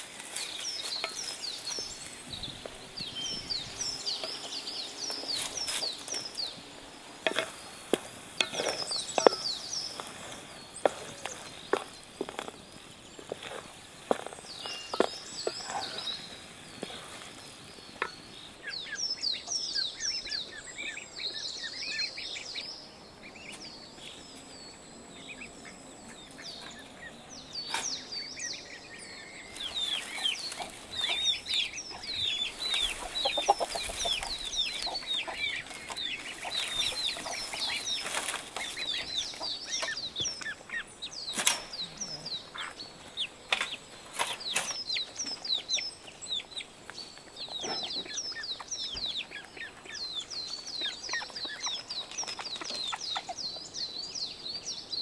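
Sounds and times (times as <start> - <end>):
chickens clucking: 0.0 - 22.6, 25.2 - 54.0
small birds chirping: 0.0 - 55.0.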